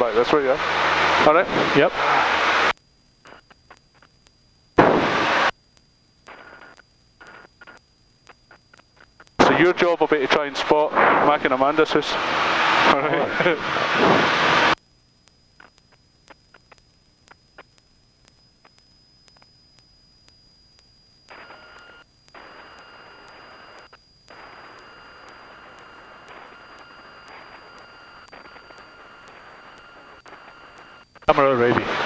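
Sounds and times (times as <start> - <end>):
faint headset hiss: 1.8 - 10.5, 14.8 - 32.0
thin steady tones: 11.4 - 31.8
soft clicks: 15.2 - 31.2.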